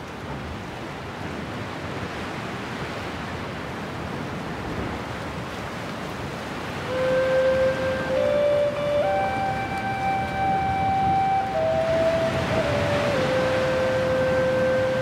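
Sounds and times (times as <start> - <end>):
gentle waves washing: 0.0 - 15.0
soft held musical note: 6.8 - 15.0.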